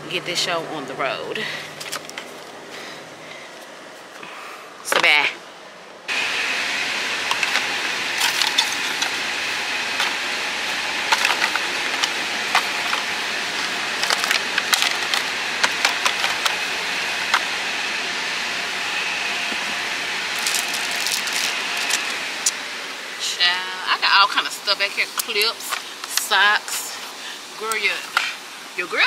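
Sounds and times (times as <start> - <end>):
vacuum hissing with faint whine: 1.2 - 29.0
debris rattling up hose: 7.1 - 17.5, 19.5 - 22.5.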